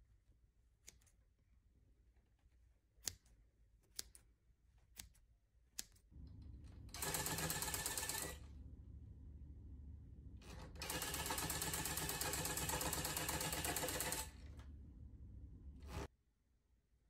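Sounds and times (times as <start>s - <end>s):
scissors snipping yarn: 0.7s - 1.4s, 2.2s - 6.1s.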